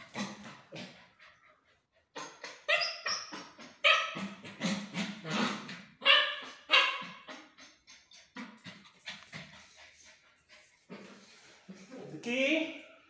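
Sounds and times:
puppy yipping and barking: 2.2 - 4.6, 6.0 - 7.4.

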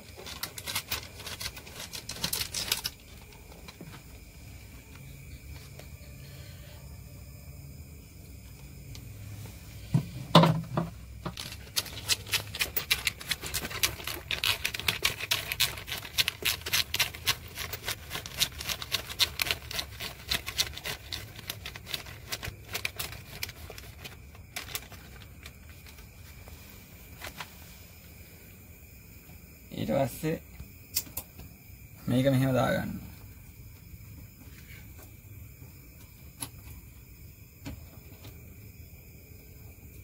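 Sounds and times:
plastic bag crinkling: 11.3 - 26.3.

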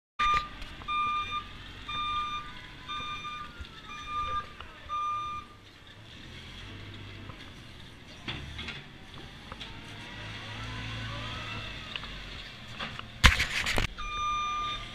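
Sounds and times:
reversing alarm beeping: 0.2 - 5.6, 14.0 - 14.9
telehandler engine running: 0.2 - 14.9.

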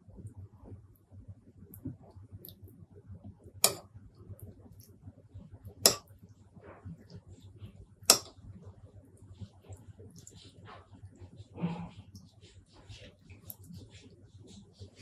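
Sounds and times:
faint chewing: 5.6 - 15.0.

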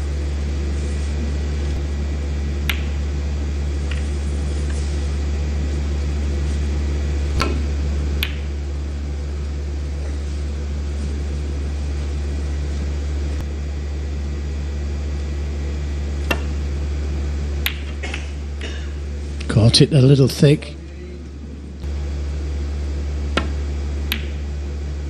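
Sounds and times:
low hum: 0.0 - 25.0
snooker balls clicking: 2.6 - 3.0, 3.8 - 4.8, 7.3 - 8.6, 17.6 - 18.2, 23.3 - 24.4.

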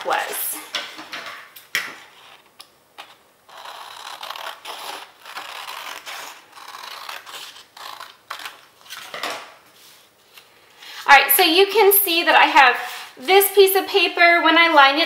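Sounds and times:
paper handling: 1.8 - 10.6
scissors snipping paper: 3.0 - 8.6.

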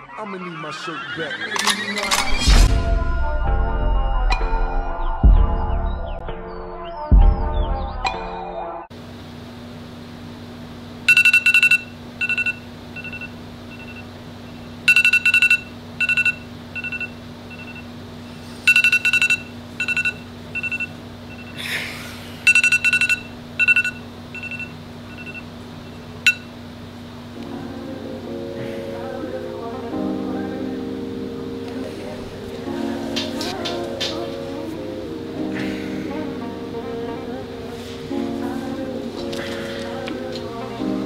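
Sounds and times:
smartphone alarm beeps: 11.1 - 14.1, 14.9 - 17.9, 18.7 - 21.6, 22.5 - 25.5, 26.3 - 26.5.

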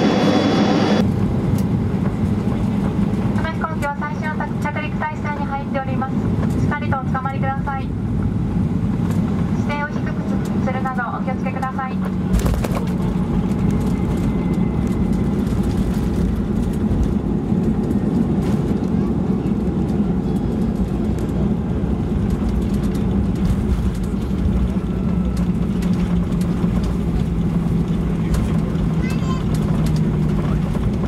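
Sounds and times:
airliner cabin rumble: 0.0 - 31.0.

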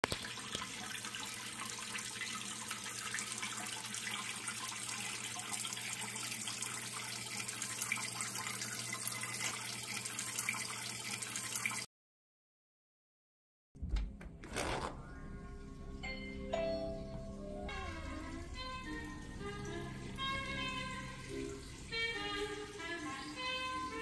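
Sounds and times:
fountain water trickling: 0.1 - 11.8, 15.1 - 24.0
low steady hum: 13.8 - 22.6.

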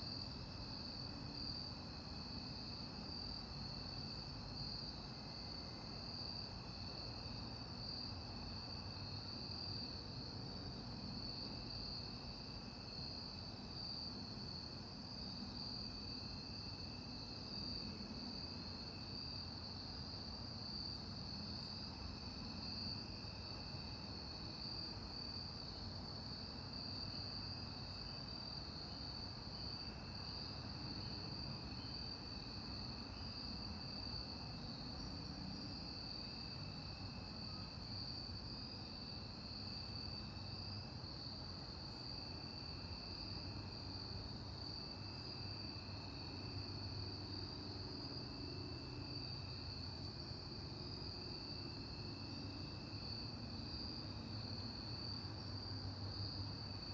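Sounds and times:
lower faint cricket trill: 0.0 - 56.9.

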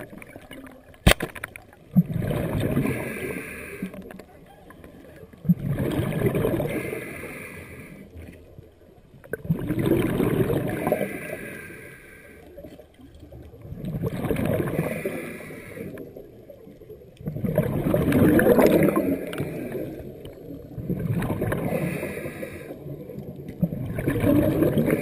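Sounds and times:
exhaled air bubbling underwater: 0.0 - 25.0
sharp click: 1.0 - 1.5
regulator inhale hiss: 2.9 - 4.0, 6.7 - 8.2, 10.9 - 12.6, 14.8 - 16.1, 21.7 - 22.9.

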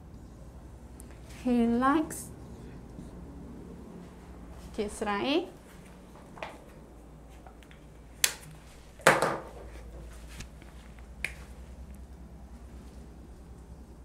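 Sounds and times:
faint writing strokes: 1.1 - 4.7.

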